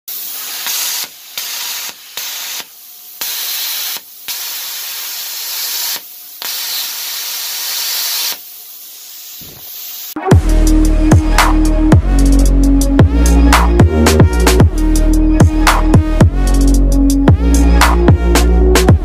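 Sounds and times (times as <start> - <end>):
plasma cutter arc hissing: 0.1 - 10.2
air hissing: 0.1 - 10.8
torch click: 0.2 - 8.5.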